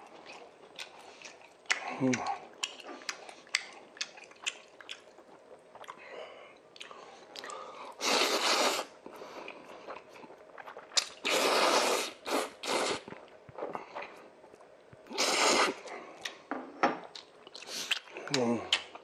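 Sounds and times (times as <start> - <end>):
wet chewing: 0.1 - 6.1, 9.0 - 16.4, 17.0 - 19.0
person slurping noodles: 8.0 - 8.9, 11.2 - 13.1, 15.1 - 15.8.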